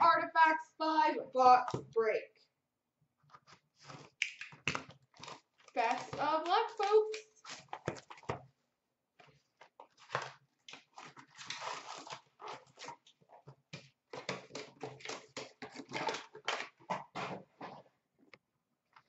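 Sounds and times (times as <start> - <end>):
wrapper and cardboard crinkling: 3.4 - 8.5, 9.2 - 17.9.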